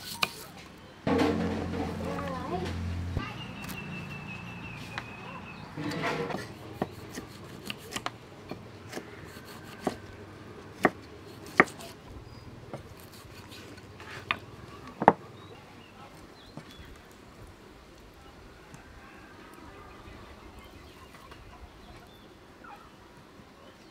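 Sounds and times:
knife chopping on wooden board: 6.3s - 10.0s, 10.8s - 11.9s.

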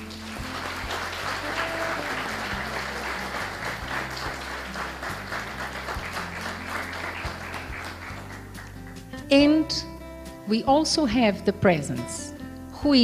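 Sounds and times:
audience applauding: 0.0s - 9.2s
background music with low bass: 0.0s - 13.0s.

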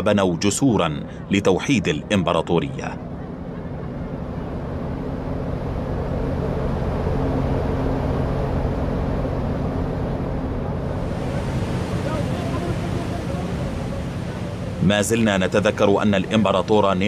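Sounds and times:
low drone: 1.0s - 17.0s
noisy rushing wash: 3.5s - 17.0s.

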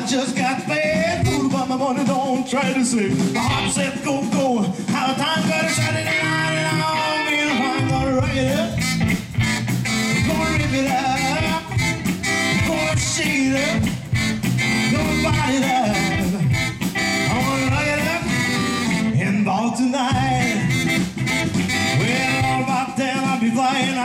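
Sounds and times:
live rock band playing: 0.0s - 24.0s
saxophone: 5.5s - 19.3s, 20.2s - 23.0s.

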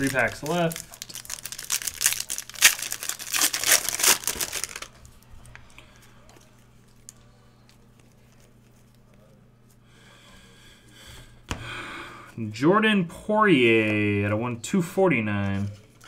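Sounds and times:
foil wrapper tearing and crinkling: 0.0s - 5.0s.

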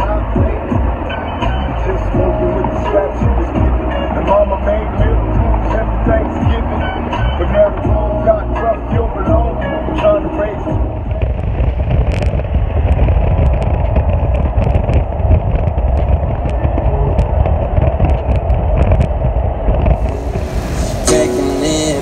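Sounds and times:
music: 0.0s - 12.2s, 19.9s - 22.0s
car road and engine rumble: 0.0s - 22.0s
bright hiss: 20.0s - 22.0s.

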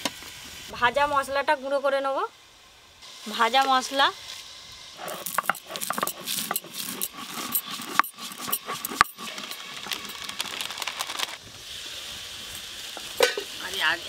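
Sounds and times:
steady hiss: 0.0s - 14.0s
stone grinding spices: 5.0s - 10.5s.

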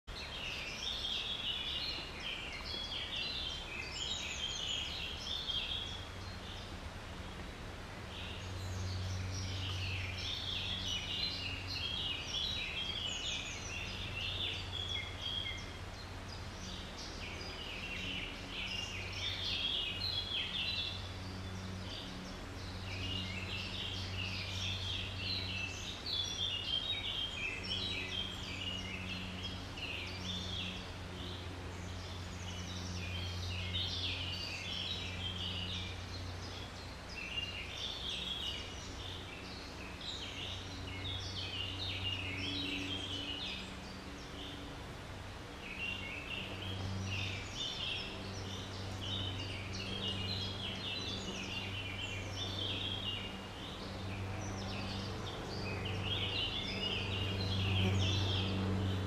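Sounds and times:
songbird singing: 0.0s - 59.0s.

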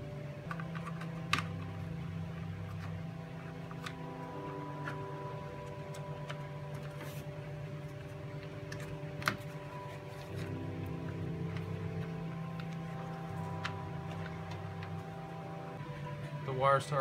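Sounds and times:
steady hum with tones: 0.0s - 17.0s.

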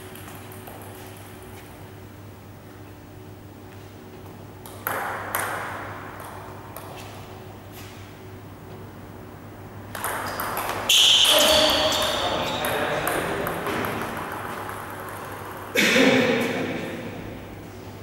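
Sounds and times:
low hum of hall: 0.0s - 18.0s
table tennis ball clicking: 9.9s - 15.8s.

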